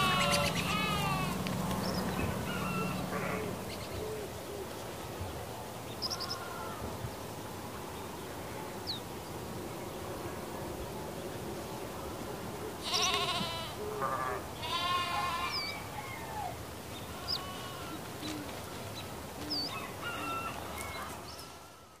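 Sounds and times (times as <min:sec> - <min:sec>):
sheep and lambs bleating: 0:00.0 - 0:01.5, 0:03.1 - 0:03.5, 0:06.1 - 0:06.8, 0:12.8 - 0:15.8, 0:17.0 - 0:18.1.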